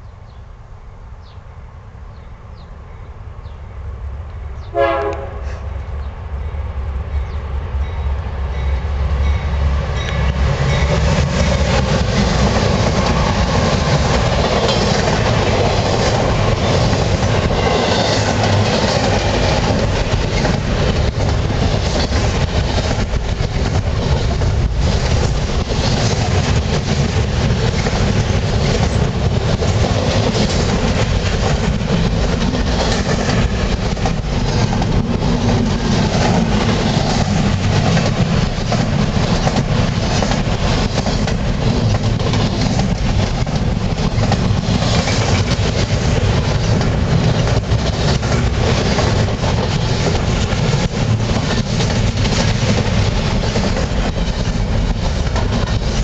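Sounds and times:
diesel locomotives: 0.0 - 56.0
locomotive horn blast: 4.7 - 5.7
train wheels clacking over rail joints: 10.0 - 56.0.

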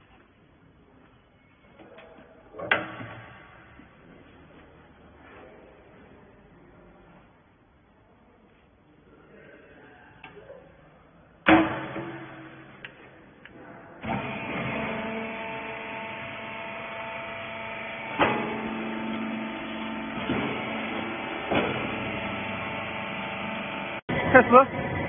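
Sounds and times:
loud clunk: 11.4 - 13.0, 17.8 - 23.7
baling press motor humming: 14.0 - 25.0.

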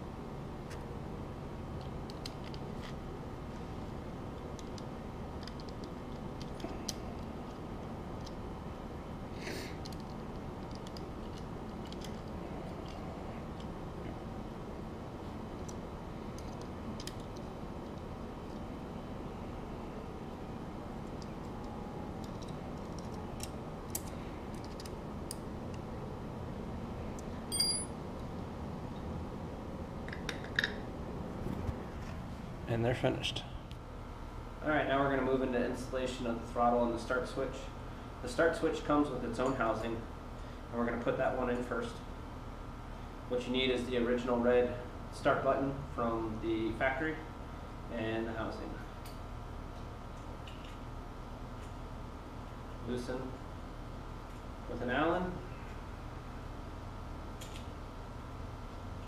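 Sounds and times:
low background noise: 0.0 - 59.0
small parts clicking and tapping: 1.8 - 3.0, 3.8 - 8.4, 9.8 - 13.7, 15.6 - 18.7, 21.0 - 25.8
sharp metallic clink: 27.5 - 28.0.

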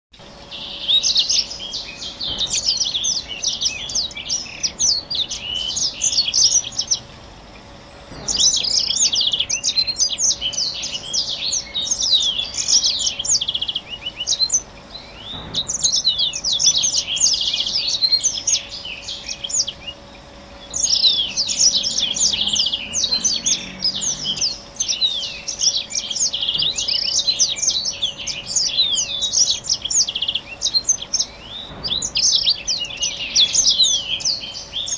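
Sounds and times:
canary singing twittering song: 0.3 - 34.9.

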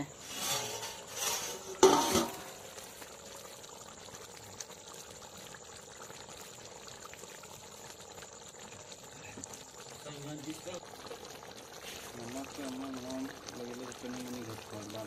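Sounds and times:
curry simmering with bubbling hiss: 0.0 - 15.0.

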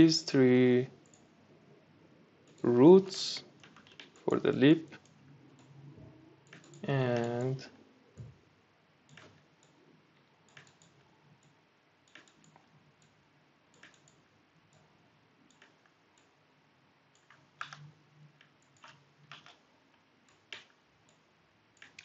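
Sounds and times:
computer mouse and keyboard clicks: 2.4 - 2.8, 3.6 - 5.8, 6.4 - 7.6, 9.1 - 9.8, 10.4 - 14.9, 15.5 - 16.3, 17.1 - 22.0.

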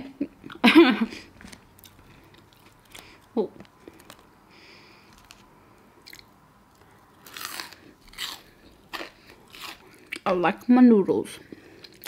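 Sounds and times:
person chewing crunchy food: 1.3 - 4.3, 4.9 - 10.3, 11.5 - 12.0.

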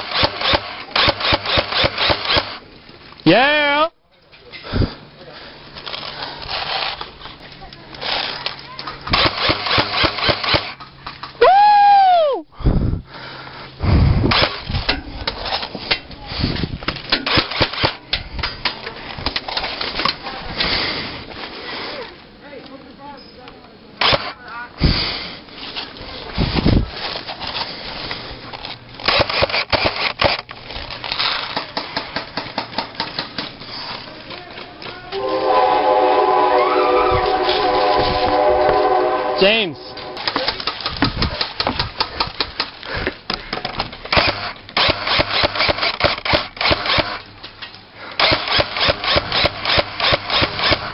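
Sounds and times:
rifle clicking and rattling: 0.0 - 3.2, 5.7 - 11.4, 16.8 - 20.2, 27.0 - 35.0, 40.2 - 50.9
loud pitched squeal: 35.2 - 40.3.

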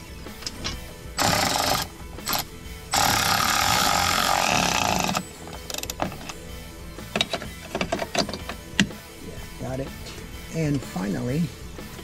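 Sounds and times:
electric screwdriver running: 1.2 - 5.9.

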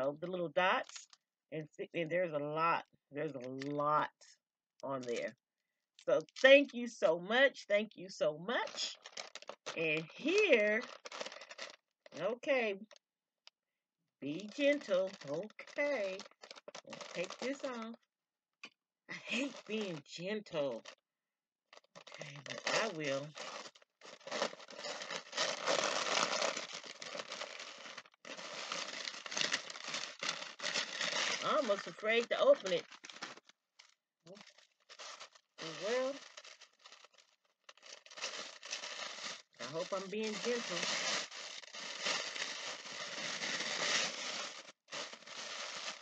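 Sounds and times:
tissue paper rustling: 8.5 - 12.3, 14.3 - 17.8, 19.2 - 20.9, 21.8 - 46.0
gift wrapping crinkling: 8.5 - 13.0, 14.2 - 18.0, 19.1 - 21.0, 21.7 - 46.0.

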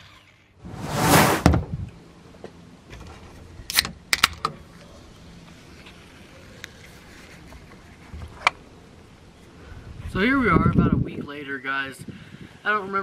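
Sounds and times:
loud rush of noise: 0.6 - 1.7.

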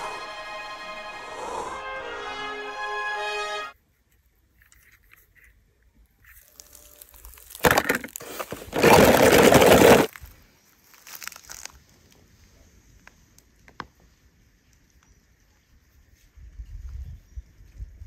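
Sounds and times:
crunching crinkling rustle: 4.1 - 13.5.

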